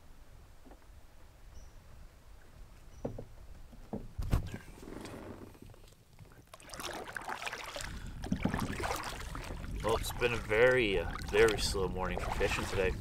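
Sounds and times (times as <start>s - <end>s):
thumps on canoe: 3.0s - 4.6s, 8.2s - 9.6s
paddle splashing in water: 6.3s - 13.0s.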